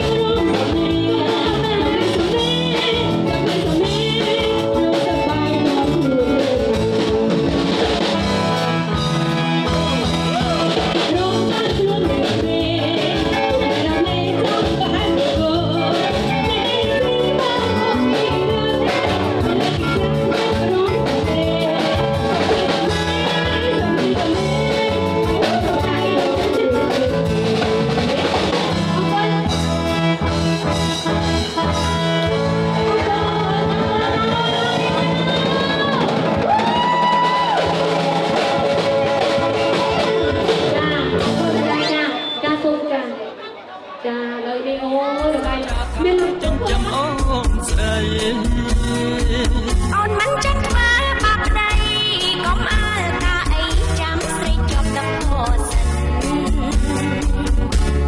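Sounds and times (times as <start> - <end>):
person singing: 0.0 - 8.0, 9.6 - 30.3, 44.9 - 58.0
drums: 0.0 - 42.9, 44.7 - 58.0
electric guitar: 0.0 - 42.9, 45.0 - 58.0.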